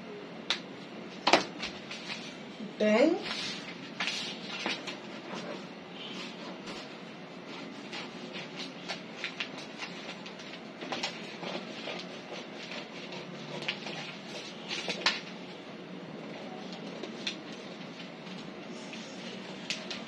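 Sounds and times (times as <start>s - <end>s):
paper rustling and tapping: 1.2s - 2.3s, 3.2s - 5.6s, 6.5s - 15.5s, 16.6s - 20.0s
paper snapping: 14.7s - 15.3s, 19.6s - 20.0s.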